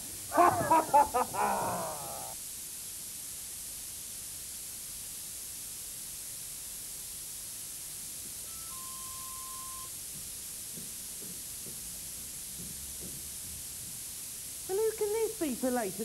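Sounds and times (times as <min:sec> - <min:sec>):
videotape hiss: 0:00.0 - 0:16.0
short electronic beep: 0:08.5 - 0:09.9.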